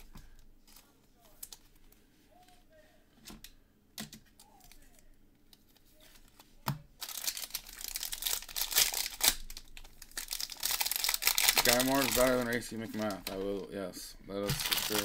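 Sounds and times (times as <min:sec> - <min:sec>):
wrapper tearing and crinkling: 0:07.0 - 0:13.4, 0:14.4 - 0:15.0.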